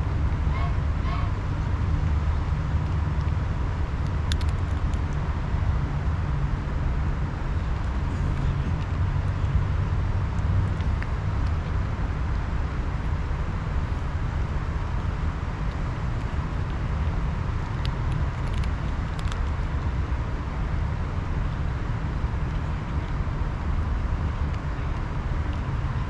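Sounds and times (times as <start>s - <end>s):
low outdoor rumble: 0.0s - 26.0s
faint clicks: 4.0s - 5.2s.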